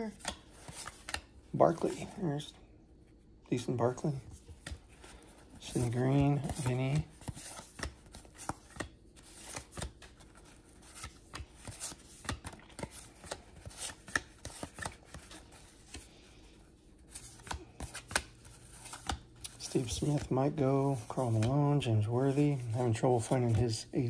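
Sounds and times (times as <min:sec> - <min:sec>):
trading cards flipped by hand: 0:00.1 - 0:02.1, 0:04.4 - 0:16.3, 0:17.0 - 0:23.6.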